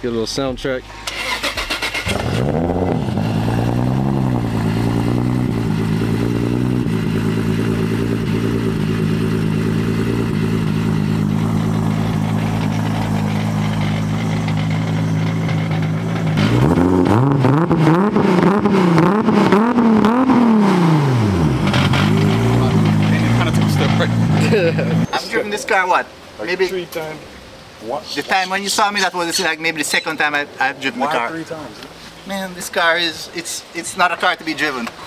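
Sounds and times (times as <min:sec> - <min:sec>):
car engine idling: 0:00.1 - 0:25.2
car engine starting and revving: 0:00.6 - 0:25.1.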